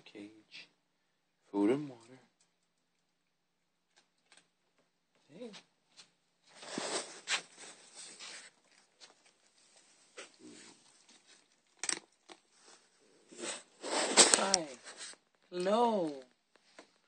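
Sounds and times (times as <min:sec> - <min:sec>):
rustling against phone microphone: 0:05.9 - 0:11.6, 0:12.4 - 0:15.4.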